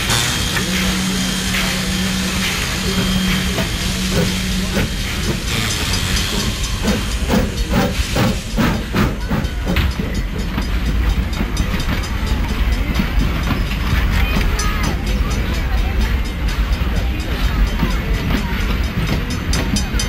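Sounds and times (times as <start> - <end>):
steam hissing: 0.0 - 14.1
locomotive exhaust chuffs: 0.0 - 20.0.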